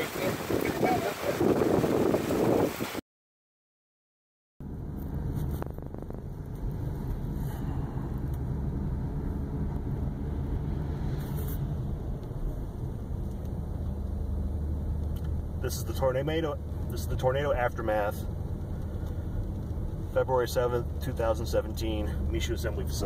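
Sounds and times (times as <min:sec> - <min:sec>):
car engine rumble: 0:04.6 - 0:23.0
tyres on road: 0:04.6 - 0:23.0.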